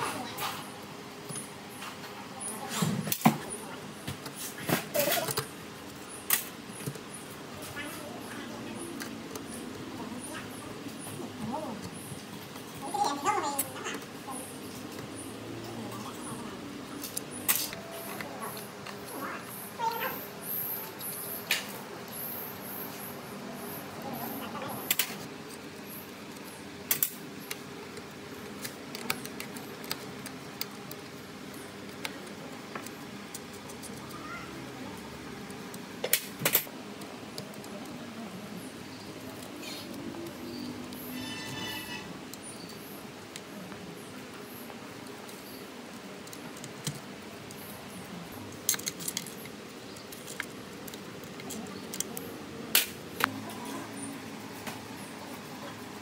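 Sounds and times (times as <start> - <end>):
metal tools clicking and clinking: 48.5 - 52.2
metal parts clinking: 48.6 - 49.5.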